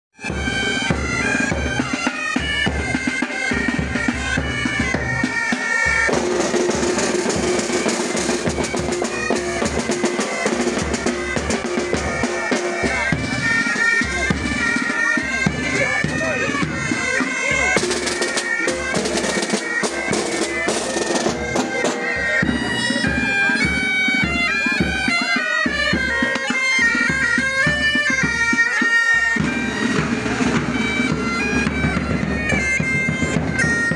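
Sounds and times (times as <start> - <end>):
bagpipe drone: 0.2 - 33.9
bagpipes playing marching melody: 0.2 - 33.9
drums beating time: 0.2 - 33.9.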